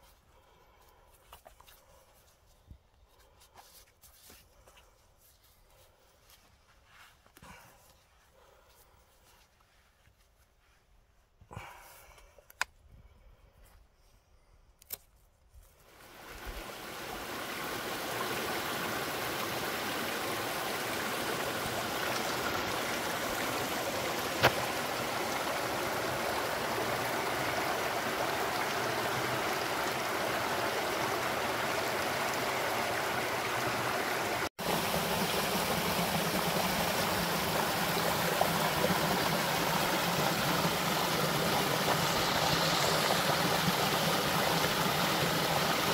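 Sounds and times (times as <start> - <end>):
stream splashing over rocks: 15.9 - 45.9.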